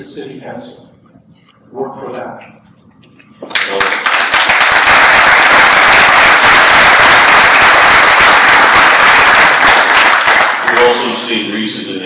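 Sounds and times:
audience applauding: 3.5s - 11.3s.

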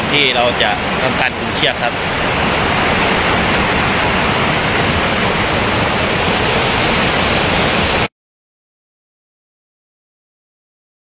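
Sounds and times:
waterfall roaring over rocks: 0.0s - 8.1s.

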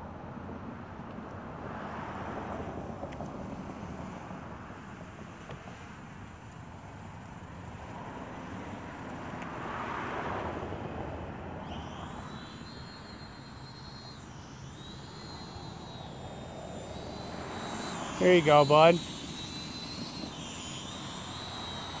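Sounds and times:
drone motors whining: 5.3s - 22.0s
rushing noise: 11.6s - 22.0s.

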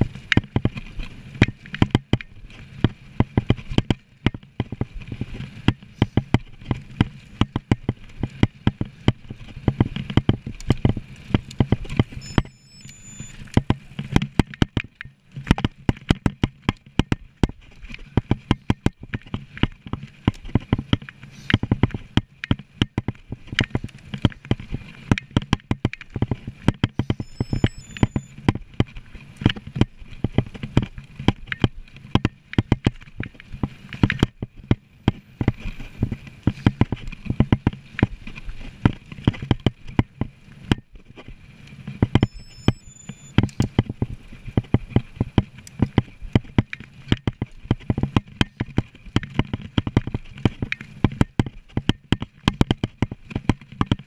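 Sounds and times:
bike rattling and clattering: 0.0s - 54.0s
wind: 0.0s - 54.0s
rush of tyres: 33.1s - 43.2s.

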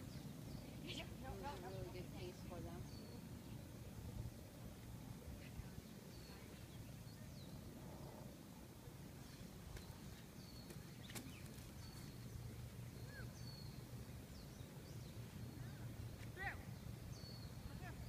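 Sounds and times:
bird chirps: 9.2s - 18.0s.

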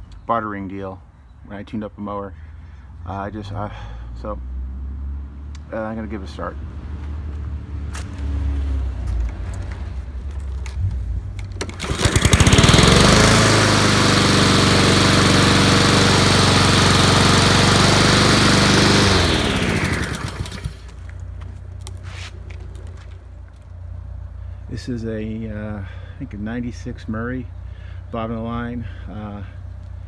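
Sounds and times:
lawn mower engine running: 11.4s - 21.2s.

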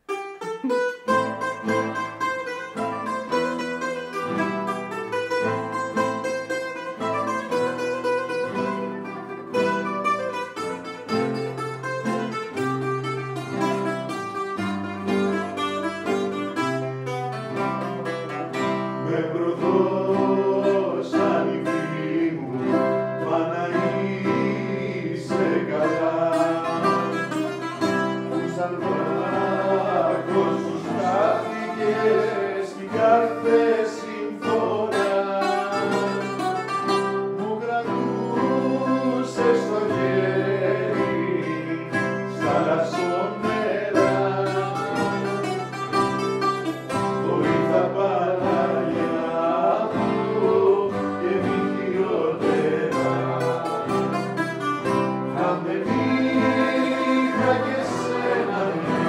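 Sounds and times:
bouzouki: 0.0s - 59.0s
classical guitar: 0.0s - 59.0s
man singing: 18.3s - 46.3s, 46.9s - 59.0s.

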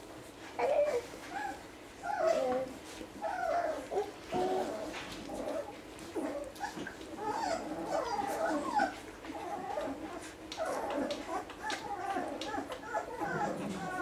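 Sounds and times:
puppies squeaking and whimpering: 0.6s - 14.0s.

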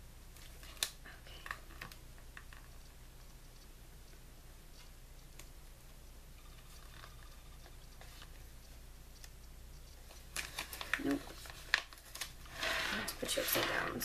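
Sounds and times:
tape ticks and rustles: 0.3s - 12.5s
tape crackling as pulled: 0.6s - 2.8s, 10.3s - 13.7s.

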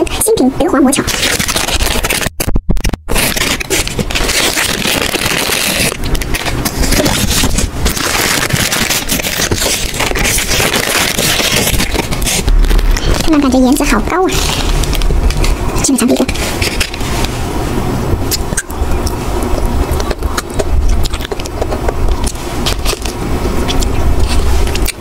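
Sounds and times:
plastic wrappers crinkling: 1.0s - 17.3s.

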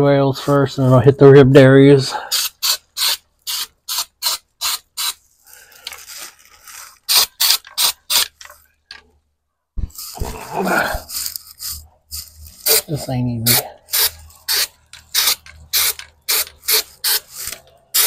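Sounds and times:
aerosol can ball rattling: 13.9s - 18.0s.

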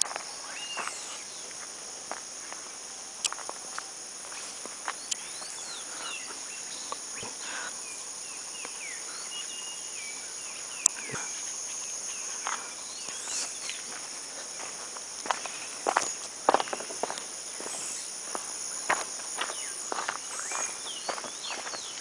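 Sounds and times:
high-pitched insect drone: 0.0s - 22.0s
footsteps: 13.7s - 22.0s.

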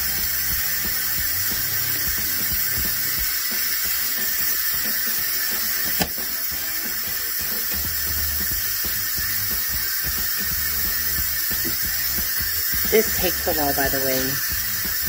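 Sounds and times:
pressure cooker steam hissing: 0.0s - 15.0s
sharp click: 5.8s - 6.3s.

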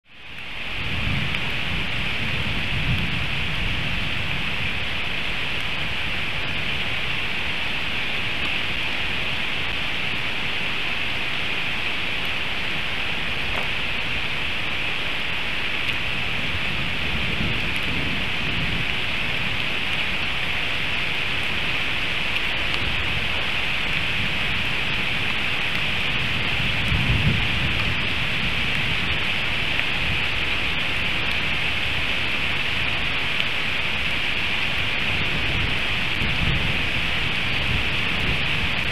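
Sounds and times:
heavy rain hiss: 0.1s - 38.9s
rolling thunder: 16.1s - 19.6s, 22.8s - 30.3s.

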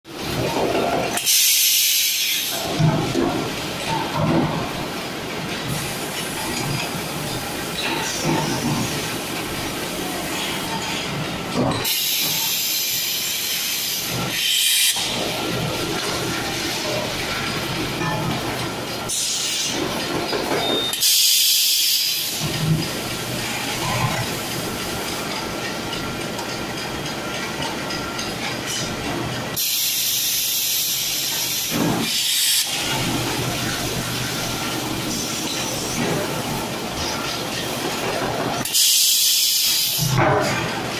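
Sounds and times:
drum seamer machine running: 22.2s - 38.8s.

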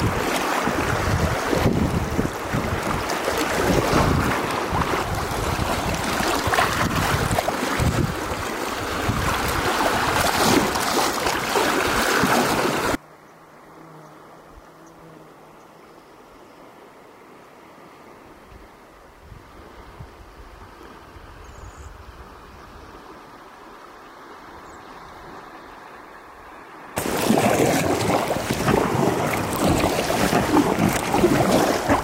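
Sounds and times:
rushing water: 0.0s - 13.0s, 22.5s - 32.0s
wind buffeting microphone: 0.0s - 13.0s, 27.0s - 32.0s.

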